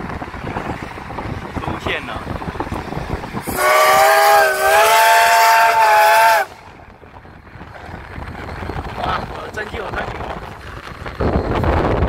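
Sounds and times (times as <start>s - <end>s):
steam locomotive whistle: 3.4s - 6.6s.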